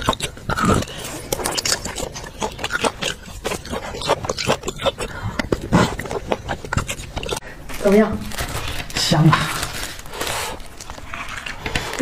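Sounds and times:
wet sucking and slurping: 0:00.0 - 0:07.4.

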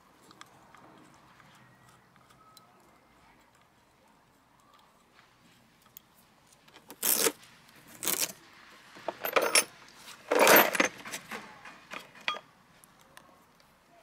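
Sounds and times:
metal tools clinking and jangling: 0:09.1 - 0:11.2, 0:11.9 - 0:12.4.

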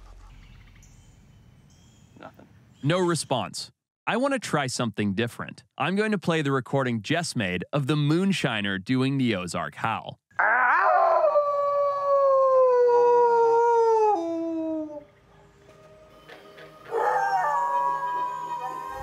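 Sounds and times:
electronic wolf howl call: 0:10.4 - 0:15.1, 0:16.8 - 0:19.0
wolf howling: 0:10.4 - 0:15.1, 0:16.9 - 0:19.0.

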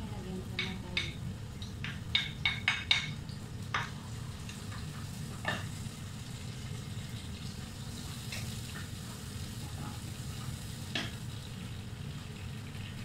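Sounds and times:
onions sizzling in a pot: 0:00.0 - 0:13.0
wooden spoon knocking on pot: 0:00.6 - 0:01.2, 0:01.8 - 0:03.1.

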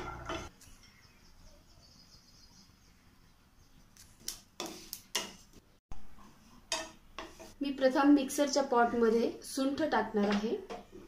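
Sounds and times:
wooden spatula scraping frying pan: 0:06.2 - 0:07.6.

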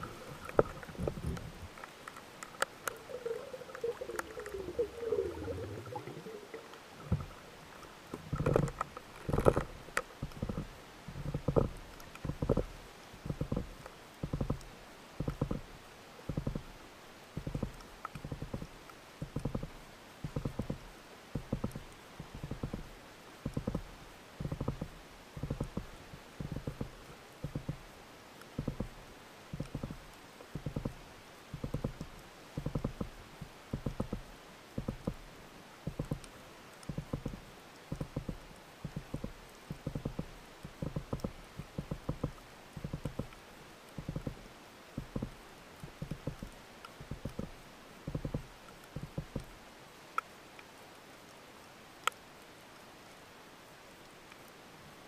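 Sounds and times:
underwater clicking knocks: 0:02.4 - 0:07.4, 0:08.3 - 0:15.7, 0:16.3 - 0:16.7, 0:17.4 - 0:27.8, 0:28.6 - 0:30.0, 0:30.6 - 0:35.2, 0:35.8 - 0:43.4, 0:44.0 - 0:44.4, 0:45.0 - 0:49.5
bursts of rapid low clicks: 0:31.6 - 0:35.2, 0:35.8 - 0:44.4, 0:45.0 - 0:49.5.

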